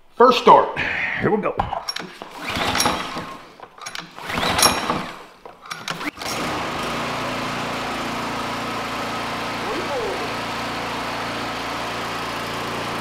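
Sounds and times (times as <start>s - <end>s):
recoil starter pulled: 1.8s - 7.2s
lawn mower engine running: 2.1s - 13.0s.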